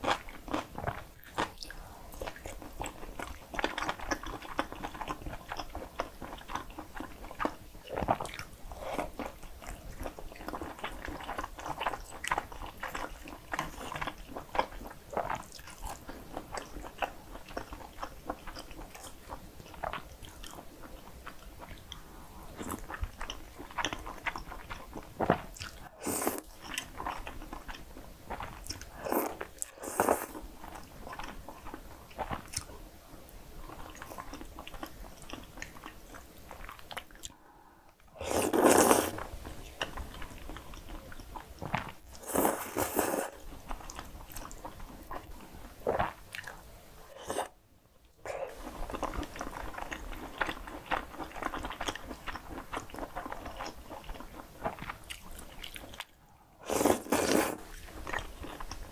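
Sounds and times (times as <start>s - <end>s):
chewing sausage: 0.0s - 37.4s, 38.0s - 47.5s, 48.2s - 58.9s
slurping noodles: 38.2s - 39.3s, 42.2s - 43.4s, 56.6s - 57.8s.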